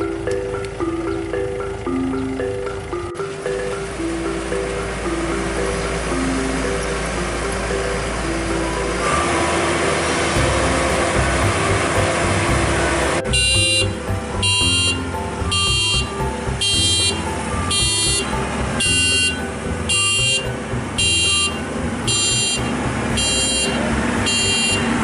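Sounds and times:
engine running: 0.0s - 25.0s
reversing alarm beeps: 13.3s - 25.0s.

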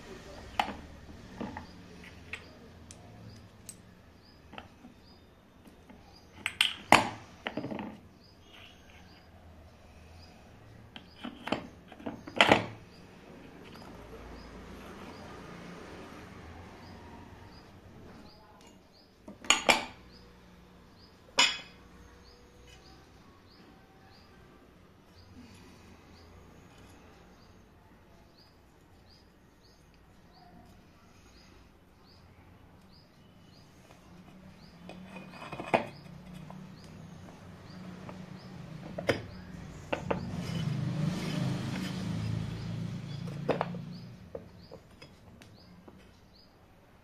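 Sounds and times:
metal parts knocking on wooden table: 21.4s - 21.8s, 34.8s - 36.6s.

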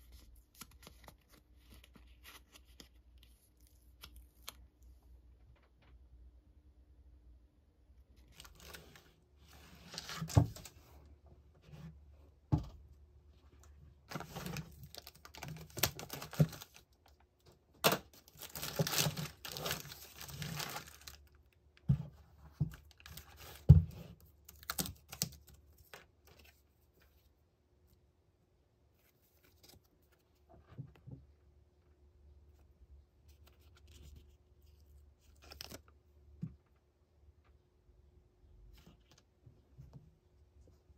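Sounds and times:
plastic bags crinkling: 14.1s - 16.8s, 17.8s - 21.4s.

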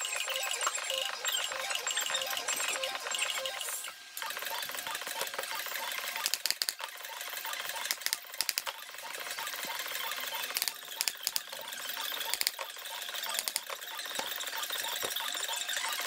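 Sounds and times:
staple gun clacking: 6.2s - 6.8s, 7.9s - 8.8s.

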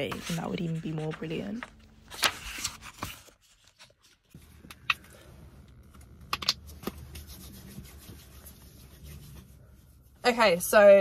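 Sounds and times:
paper pages rustling: 0.0s - 8.2s.

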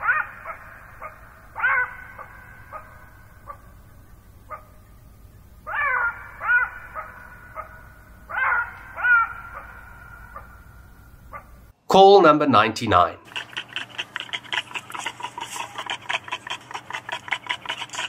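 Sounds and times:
wild animal calling: 0.0s - 11.7s, 13.2s - 18.0s.

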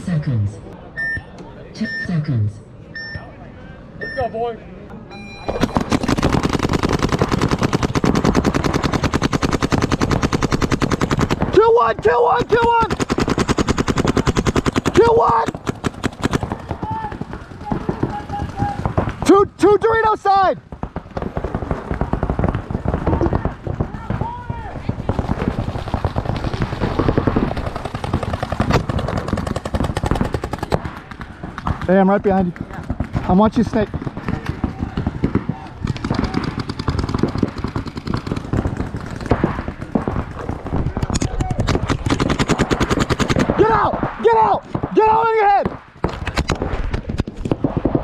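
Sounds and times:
paintball marker firing: 5.5s - 11.5s, 12.5s - 19.3s, 25.0s - 31.9s, 32.5s - 43.6s.

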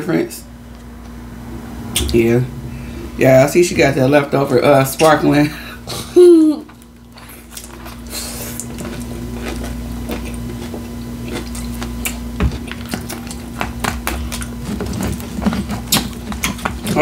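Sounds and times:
steady low hum: 0.0s - 17.0s
chewing and crunching: 6.7s - 17.0s.

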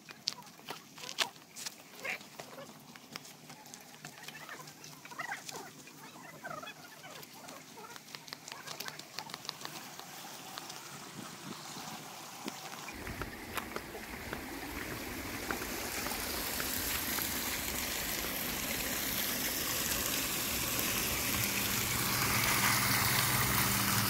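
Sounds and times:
footsteps on dirt and stone: 0.0s - 6.0s, 7.0s - 17.4s
faint bird calls: 0.3s - 16.3s.

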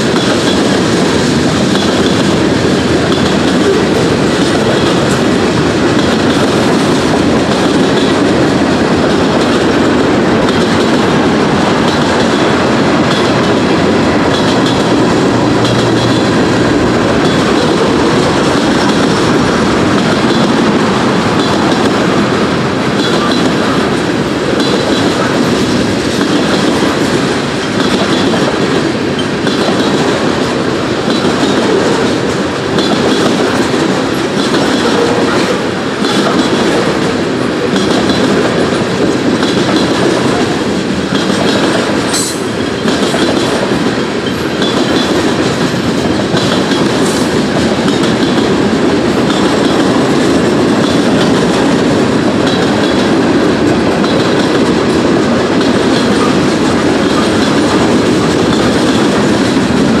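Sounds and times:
freight train rumbling past: 0.0s - 60.0s.

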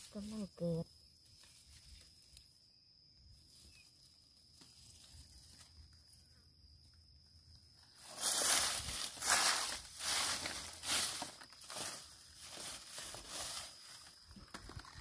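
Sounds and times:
rustles in dry leaf litter: 3.4s - 5.8s, 7.9s - 14.5s.

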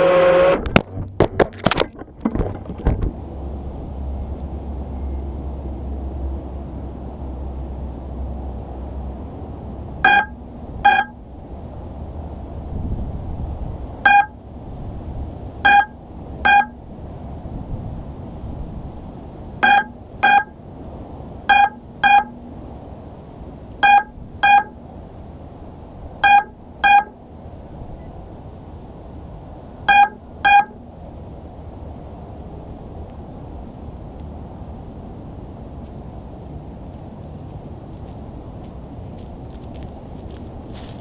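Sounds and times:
low steady background noise: 0.0s - 41.0s
electronic beeper beeping: 10.0s - 11.2s, 14.1s - 14.4s, 15.7s - 16.8s, 19.6s - 20.6s, 21.5s - 22.4s, 23.8s - 24.8s, 26.2s - 27.2s, 29.9s - 30.8s.

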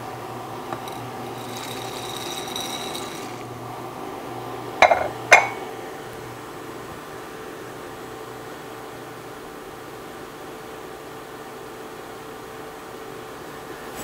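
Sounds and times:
water boiling in saucepan: 0.0s - 6.4s
bowl clunking on stone countertop: 4.8s - 5.7s.

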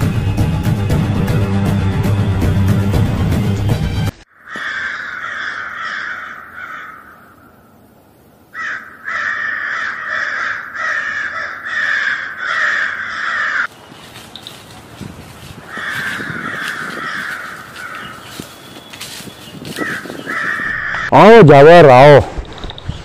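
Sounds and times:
background music: 0.0s - 4.2s
crows cawing: 4.3s - 7.8s, 8.5s - 13.7s, 15.4s - 21.2s.

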